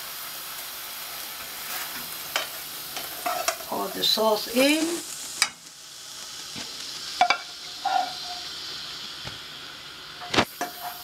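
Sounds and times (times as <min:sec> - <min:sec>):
sauce sizzling in a wok: 0:00.0 - 0:11.0
utensil clinking on metal pan: 0:07.2 - 0:08.4.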